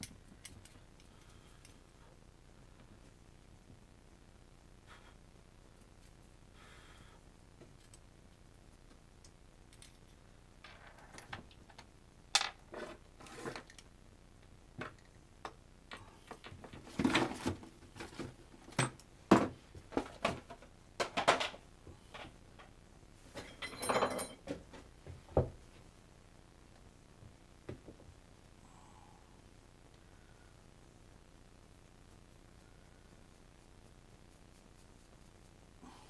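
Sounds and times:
metal parts clinking on workbench: 23.4 - 24.4
rustling: 29.4 - 36.0.

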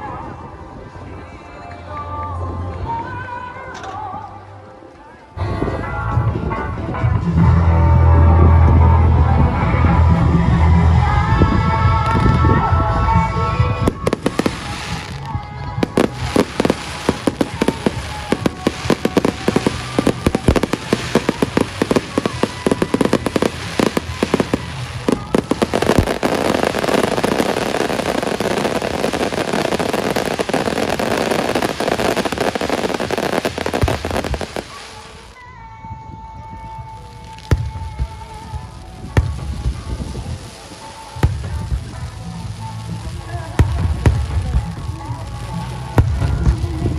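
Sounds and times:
fireworks bangs and crackles: 11.5 - 35.4, 36.7 - 46.9.

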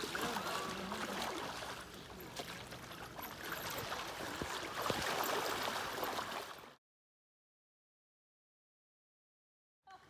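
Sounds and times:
people wading through water: 0.0 - 6.8.

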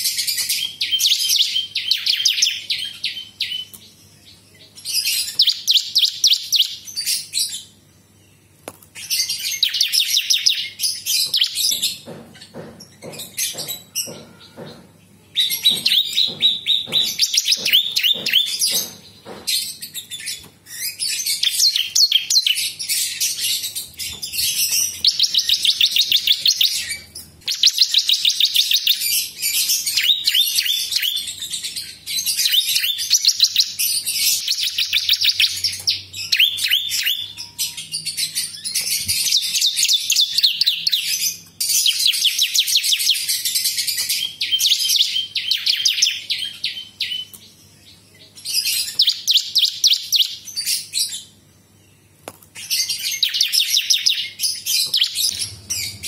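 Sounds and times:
bird singing fast trills: 0.0 - 56.0
sharp bird ticks: 15.7 - 19.4.

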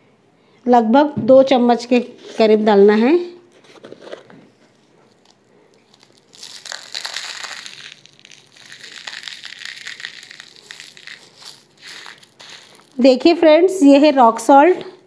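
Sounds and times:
rock salt crunching in plastic container: 5.2 - 13.3.

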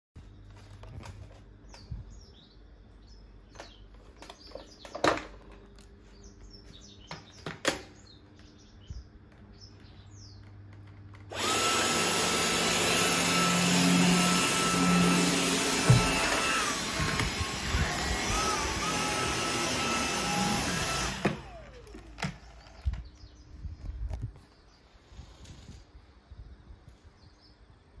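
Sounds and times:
vacuum cleaner running: 11.3 - 22.4
sharp handling knocks: 15.8 - 16.4.

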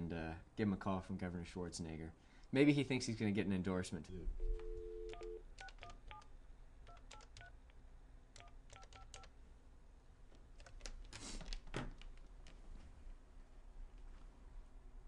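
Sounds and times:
telephone keypad beeps: 4.4 - 6.3, 6.9 - 7.6, 8.4 - 9.3.

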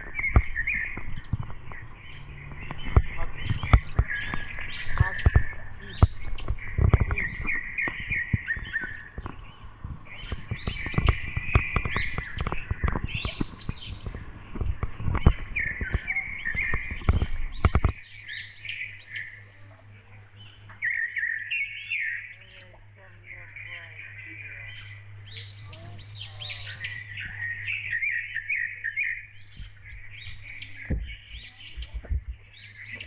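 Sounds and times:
camera thumps and scuffs: 0.0 - 18.1, 29.4 - 33.0
low hum: 0.0 - 33.0
small birds chirping: 0.0 - 33.0.

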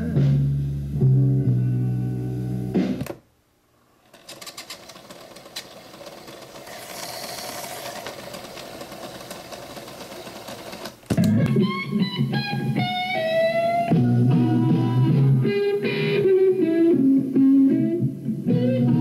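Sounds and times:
guitar music: 0.9 - 3.0, 11.2 - 19.0
tape winding whir: 4.0 - 11.4.

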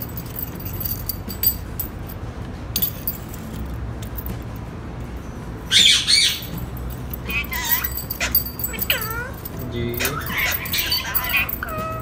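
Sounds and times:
parakeet squawk: 5.7 - 6.5, 7.2 - 8.4, 10.0 - 12.0.

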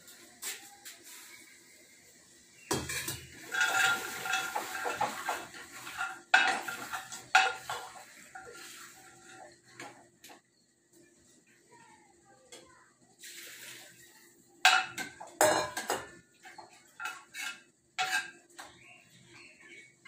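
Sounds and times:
ladle scraping pressure cooker: 3.3 - 9.5, 17.0 - 18.4.

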